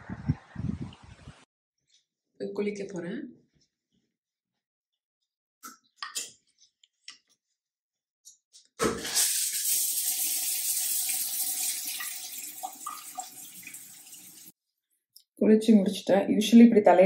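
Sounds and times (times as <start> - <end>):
shower spraying onto tiles: 8.8 - 14.5.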